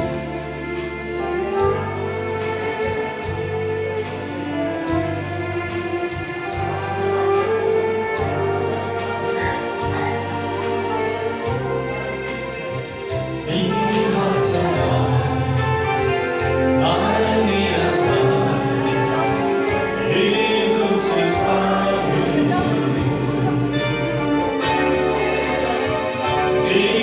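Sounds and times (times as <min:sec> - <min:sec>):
worship song instruments: 0:00.0 - 0:27.0
people singing: 0:13.5 - 0:27.0.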